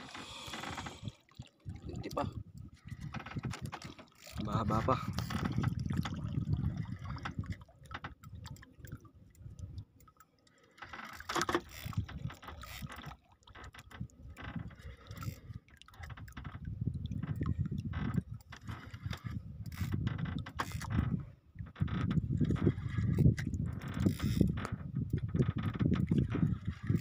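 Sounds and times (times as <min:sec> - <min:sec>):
water lapping at boat: 0:00.0 - 0:27.0
fishing reel clicking and knocking: 0:03.0 - 0:05.6, 0:10.0 - 0:16.6, 0:17.2 - 0:21.1, 0:21.8 - 0:27.0.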